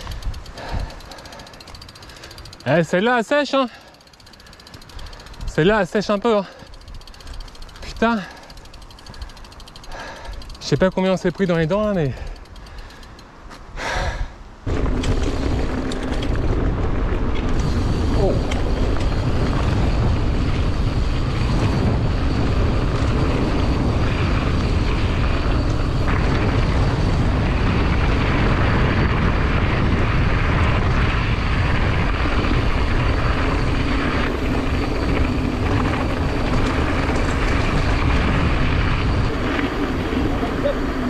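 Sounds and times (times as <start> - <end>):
wind rush on microphone: 0.0 - 2.9, 13.6 - 41.0
bike tyre noise: 0.0 - 41.0.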